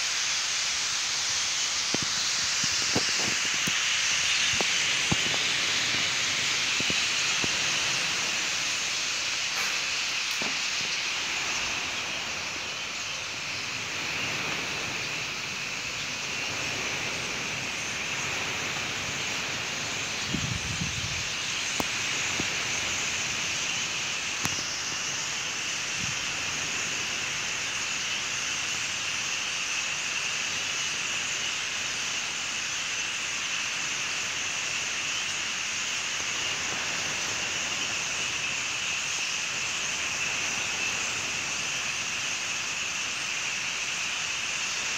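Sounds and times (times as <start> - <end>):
flock of starlings chattering: 1.6 - 44.9.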